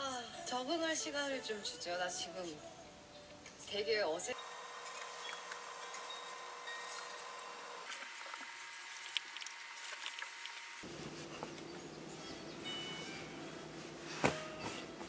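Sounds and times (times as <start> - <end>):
rustling of clothes: 7.8 - 15.0.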